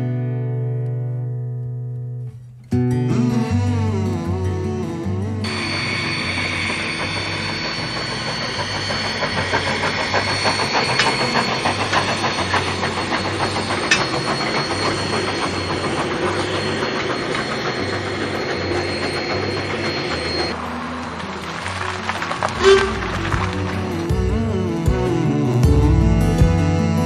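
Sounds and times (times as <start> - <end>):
steam train rumble: 4.0 - 27.0
steam hiss: 5.4 - 25.8
wheels clattering on rails: 5.5 - 25.2.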